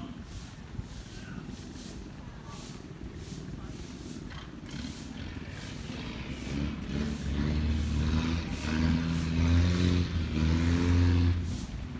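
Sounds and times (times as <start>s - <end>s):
motor engine running: 2.8s - 11.9s.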